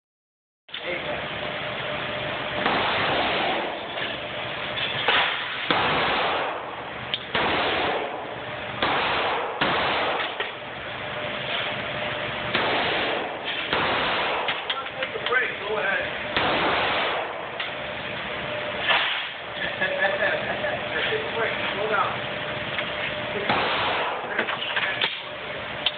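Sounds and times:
reverberant handgun shots: 2.6s - 3.9s, 5.1s - 10.6s, 12.5s - 14.7s, 16.3s - 17.6s, 23.5s - 24.4s.

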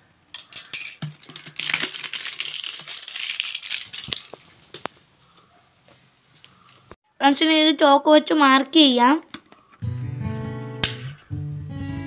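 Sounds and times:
plastic bottle crinkling: 1.1s - 4.9s.

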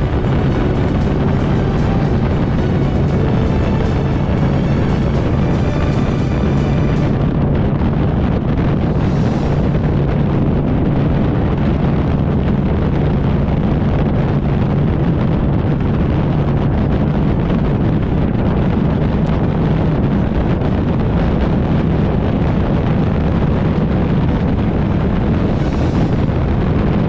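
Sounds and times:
motorbike engine running: 0.0s - 7.7s
wind rushing over microphone: 0.0s - 27.0s.

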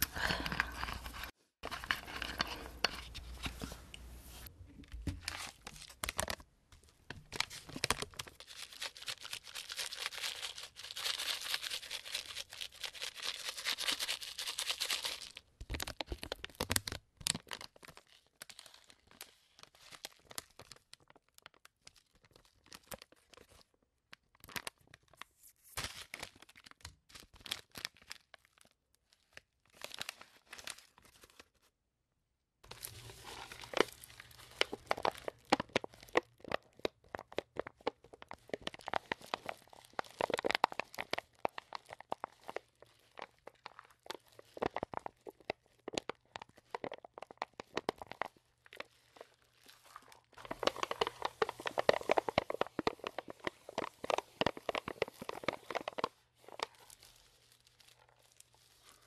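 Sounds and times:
fingernails scratching plastic packet: 32.8s - 59.0s.

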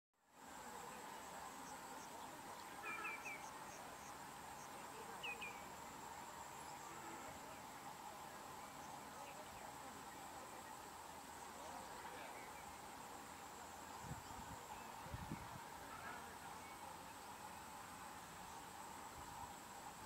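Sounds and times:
faint insect drone: 0.2s - 20.0s
short bird chirps: 2.8s - 3.5s.

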